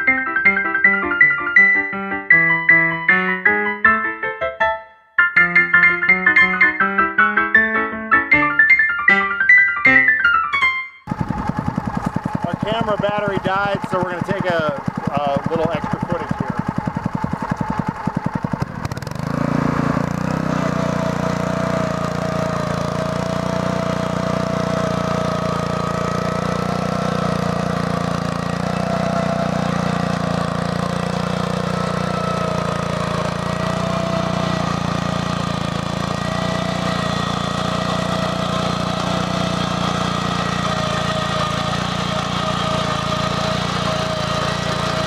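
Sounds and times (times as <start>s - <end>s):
tractor engine running under load: 11.1s - 45.0s.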